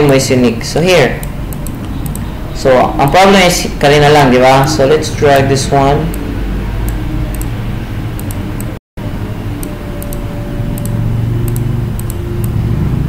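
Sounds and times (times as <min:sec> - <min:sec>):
computer mouse clicks: 0:01.2 - 0:02.3, 0:06.9 - 0:07.5, 0:08.2 - 0:08.7, 0:10.8 - 0:12.6.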